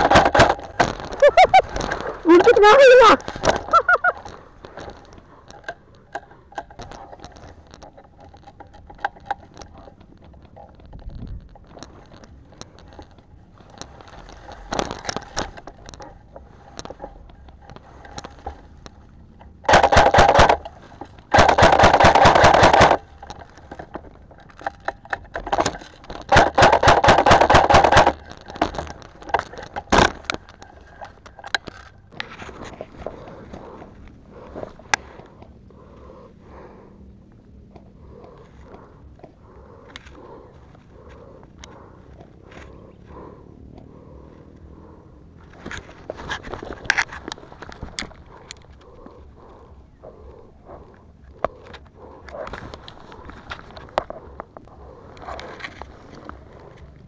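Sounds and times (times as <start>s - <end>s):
airsoft rifle automatic fire: 0.0s - 0.6s, 19.7s - 20.6s, 21.3s - 23.0s, 26.3s - 28.2s.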